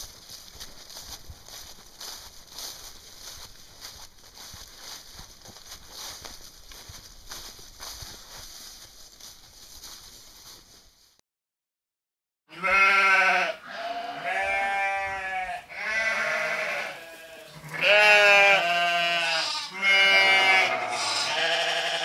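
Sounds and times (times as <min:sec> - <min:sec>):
farm animals bleating: 0:12.5 - 0:22.0.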